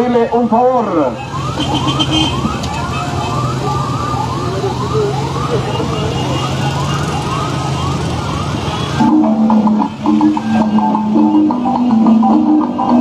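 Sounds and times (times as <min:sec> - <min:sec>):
engines humming: 0:00.0 - 0:13.0
siren whooping: 0:00.1 - 0:13.0
music with struck notes: 0:09.0 - 0:13.0.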